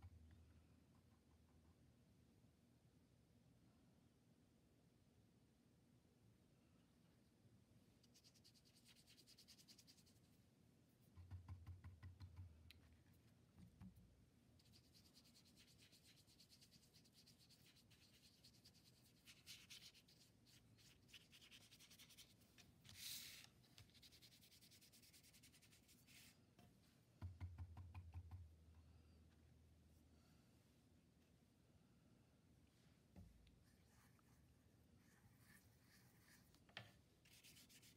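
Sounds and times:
paintbrush scrubbing on paper: 8.0s - 10.3s, 14.6s - 26.4s, 33.6s - 36.6s, 37.2s - 37.9s.

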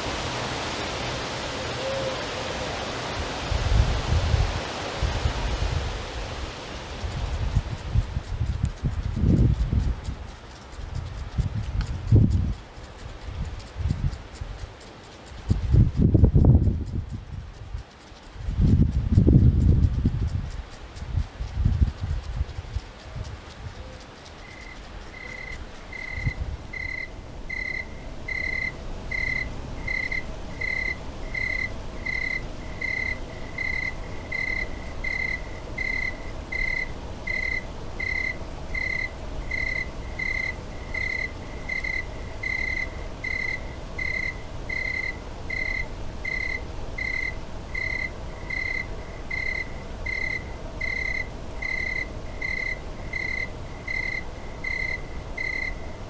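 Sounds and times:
cricket chirping: 24.3s - 56.0s.

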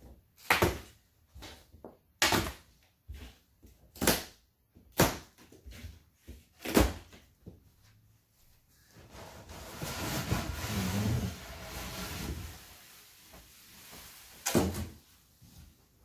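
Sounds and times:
knocks and scrapes on cardboard: 9.1s - 12.8s.

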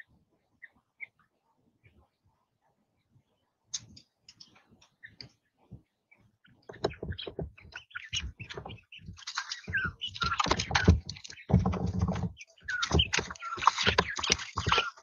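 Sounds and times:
quail chirping: 6.2s - 15.0s
beaks and feet tapping: 6.5s - 15.0s.

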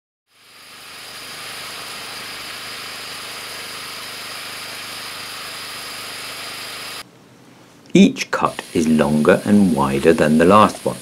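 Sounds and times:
bandsaw mill running: 0.3s - 7.0s.

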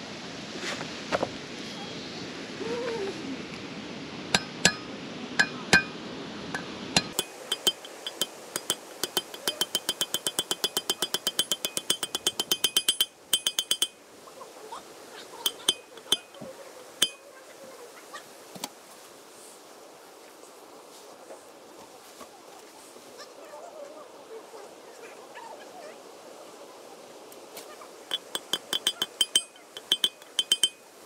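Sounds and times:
hammer tapping metal drift: 4.4s - 6.0s, 6.6s - 14.0s, 15.5s - 17.2s, 28.1s - 30.8s.

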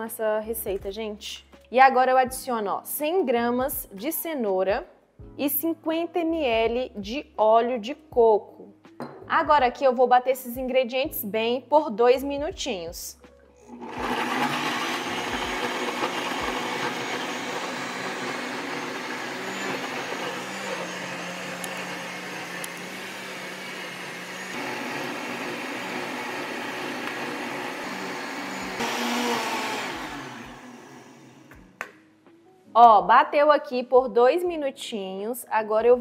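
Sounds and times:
electric blender running: 13.6s - 31.7s.

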